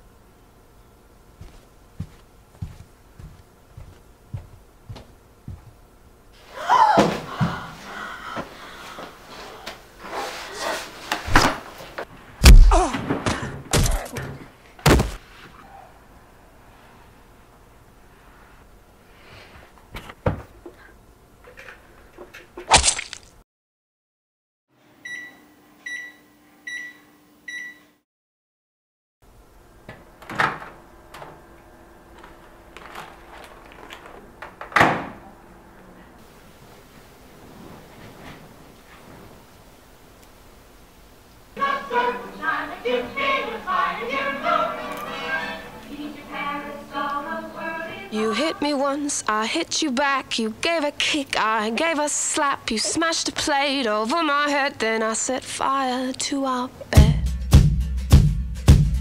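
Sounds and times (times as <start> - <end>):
microwave running hum: 0.0 - 10.1, 24.8 - 28.0, 29.2 - 37.4
person crying out: 6.5 - 7.6, 12.5 - 13.1
bodies thumping against door: 12.4 - 14.0, 14.8 - 15.2
microwave electronic beeps: 25.0 - 28.0.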